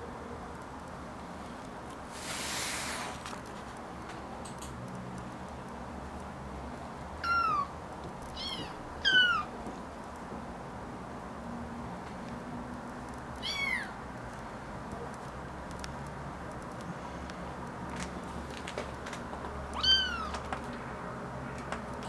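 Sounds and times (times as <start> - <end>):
soft rustle: 1.5 - 3.9
kitten mewing: 7.2 - 7.7, 8.4 - 9.5, 13.4 - 14.0, 19.8 - 20.4.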